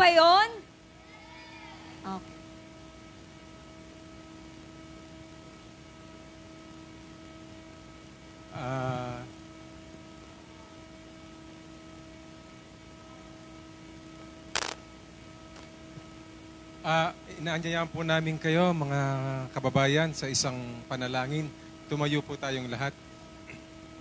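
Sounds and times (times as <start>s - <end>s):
electrical hum from speakers: 0.0s - 24.0s
sharp click: 14.6s - 14.8s.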